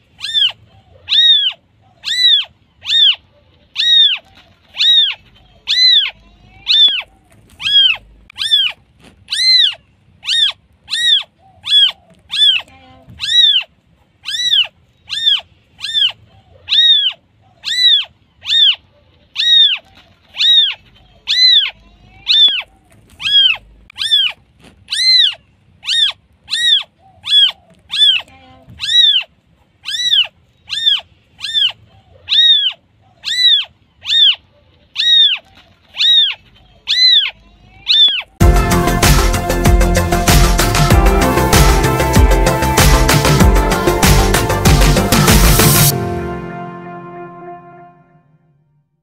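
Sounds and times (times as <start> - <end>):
kitten meowing: 0.2 - 3.2, 3.8 - 13.7, 14.3 - 18.8, 19.4 - 29.3, 29.9 - 34.4, 35.0 - 38.3.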